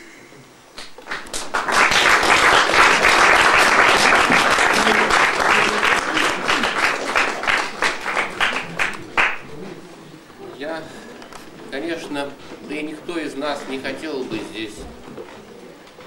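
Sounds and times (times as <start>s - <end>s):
audience applauding: 0.8s - 9.5s.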